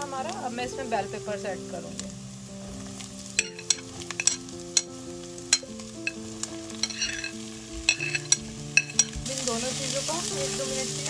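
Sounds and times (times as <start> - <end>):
onion sizzling: 0.0 - 11.0
spatula clacking on pan: 3.4 - 9.3.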